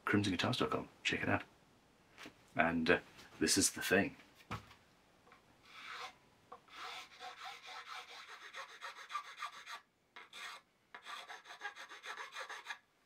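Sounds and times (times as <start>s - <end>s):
hand file scraping: 5.7s - 12.8s.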